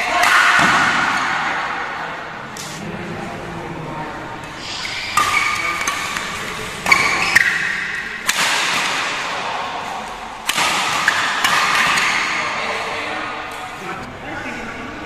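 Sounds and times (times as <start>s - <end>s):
badminton racket hitting shuttlecock: 5.1s - 9.1s, 10.4s - 12.3s.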